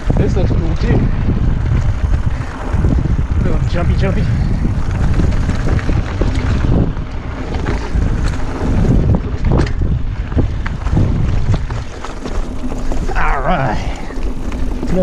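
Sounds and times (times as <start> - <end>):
bike rattling and knocking: 0.0 - 15.0
wind buffeting microphone: 0.0 - 15.0.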